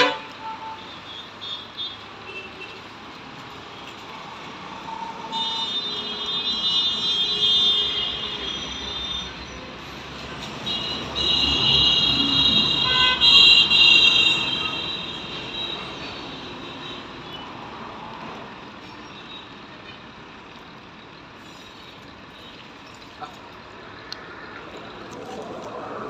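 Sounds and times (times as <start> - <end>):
traffic noise: 0.0 - 26.0
vehicle squeal or horn: 4.8 - 17.1.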